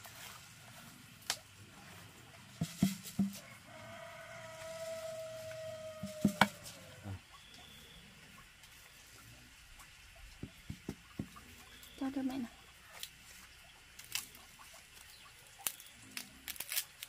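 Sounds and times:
hard objects knocking: 2.6s - 3.4s, 6.1s - 6.6s, 10.4s - 11.4s.

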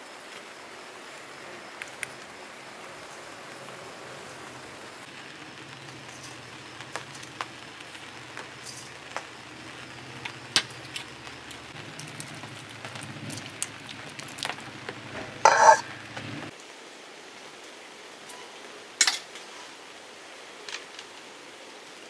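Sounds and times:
spoon clinking on bowls: 15.5s - 15.8s.

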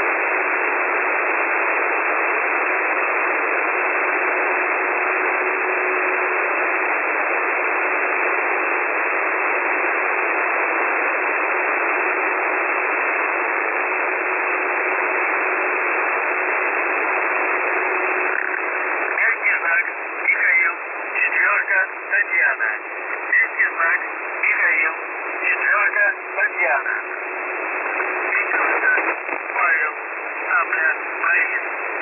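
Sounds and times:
radio static hiss: 0.0s - 32.0s.

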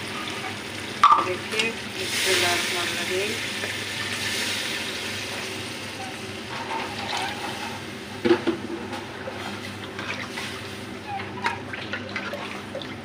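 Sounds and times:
ladle stirring and scraping in pot: 6.5s - 7.8s
water pouring into a pot: 9.4s - 13.0s.

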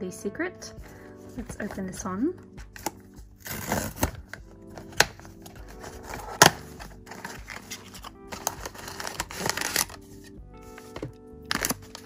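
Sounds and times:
foil bag rustling: 5.6s - 10.1s.

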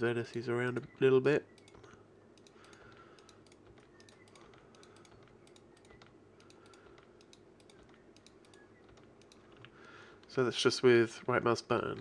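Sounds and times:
keyboard key tapping: 1.5s - 10.4s.

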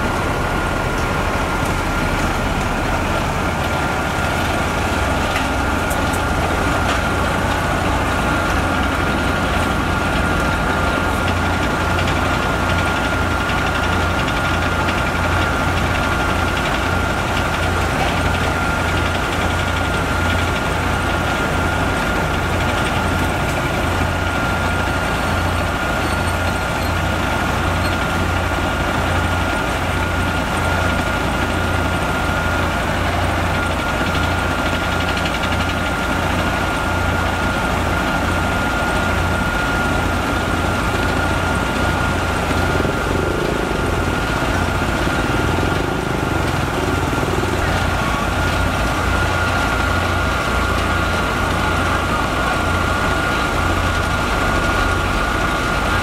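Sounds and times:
diesel engine rumble: 0.0s - 56.0s.

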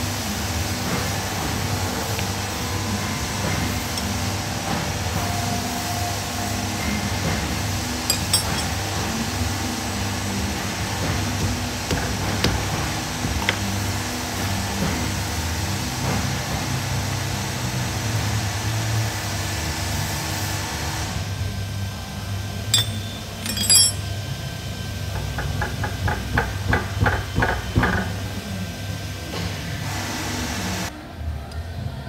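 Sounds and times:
metal clinks: 8.1s - 8.8s, 22.7s - 24.2s.

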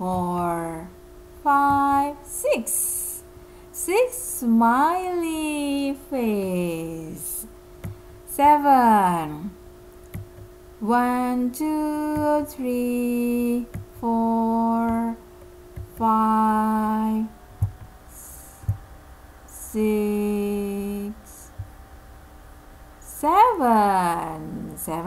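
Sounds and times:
woman humming: 0.0s - 3.2s, 3.8s - 7.5s, 10.8s - 15.2s, 16.0s - 17.4s, 18.1s - 18.8s, 19.5s - 21.7s.

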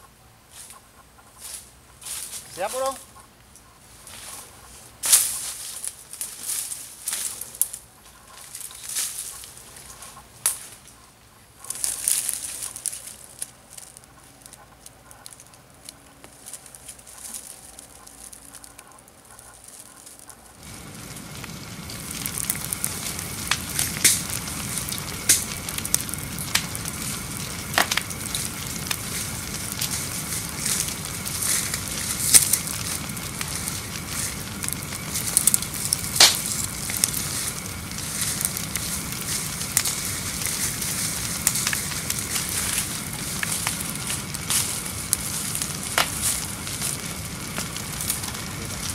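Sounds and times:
fire crackling and popping: 0.0s - 48.9s
rustling: 0.5s - 48.9s.

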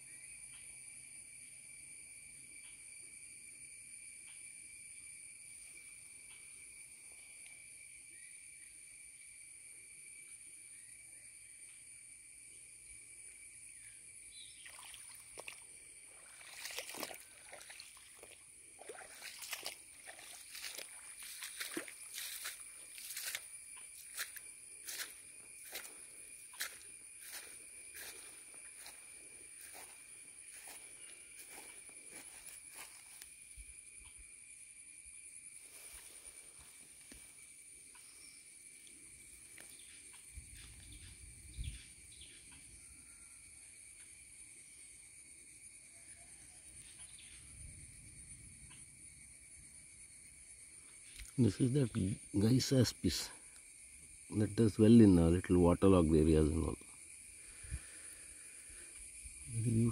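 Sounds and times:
high insect trill: 0.0s - 59.9s
footsteps sloshing through water: 14.6s - 33.3s.

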